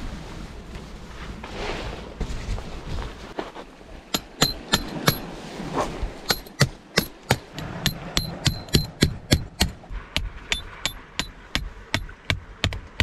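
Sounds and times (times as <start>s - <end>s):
hammer striking metal tent peg: 4.2s - 5.2s, 6.2s - 9.8s, 10.5s - 13.0s.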